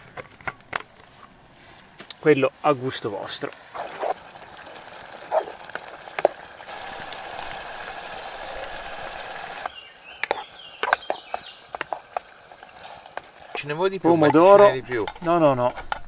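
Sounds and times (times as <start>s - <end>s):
food sizzling in a pan: 3.7s - 14.7s
wooden spoon scraping a pan: 10.2s - 16.0s.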